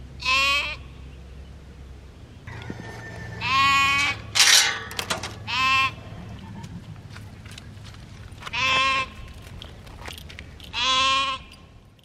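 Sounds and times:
sheep bleating: 2.5s - 4.3s, 5.5s - 6.0s, 10.7s - 11.6s.

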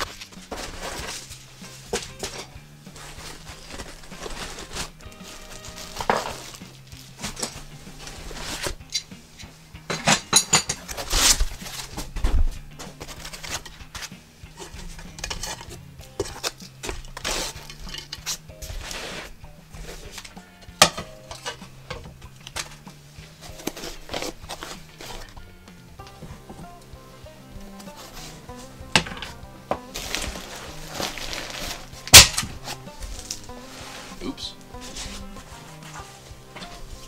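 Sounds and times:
metal parts clinking and clattering: 8.5s - 12.1s, 12.8s - 18.4s, 19.9s - 22.8s, 30.0s - 32.6s.

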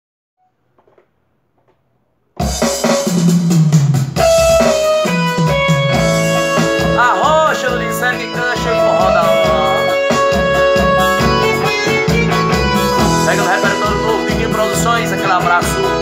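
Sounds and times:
electronic keyboard band intro: 4.2s - 16.0s.

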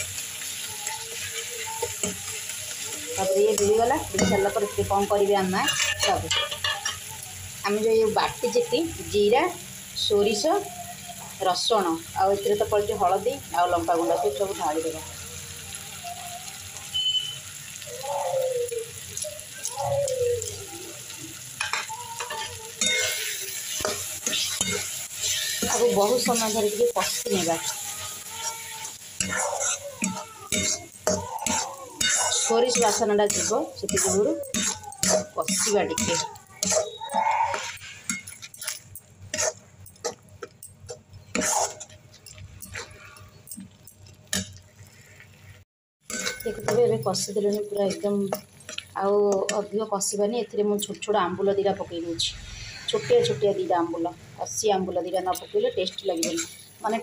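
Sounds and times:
oil sizzling: 0.0s - 57.0s
metal spatula scraping a pan: 0.9s - 7.1s, 21.6s - 49.6s, 52.4s - 53.6s, 55.2s - 57.0s.

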